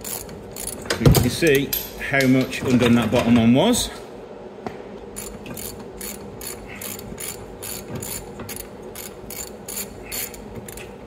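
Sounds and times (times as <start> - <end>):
ratchet wrench clicking: 0.0 - 0.8, 5.2 - 11.0.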